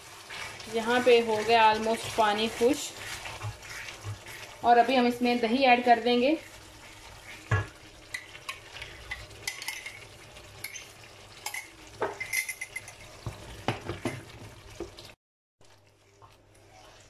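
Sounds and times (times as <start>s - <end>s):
wooden spatula scraping wok: 0.0s - 7.6s, 16.1s - 17.0s
sauce sizzling: 0.0s - 17.0s.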